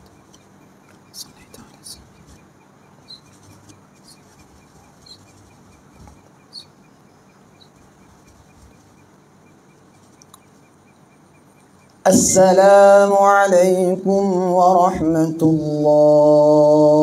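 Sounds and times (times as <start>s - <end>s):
low hiss: 0.0s - 14.1s.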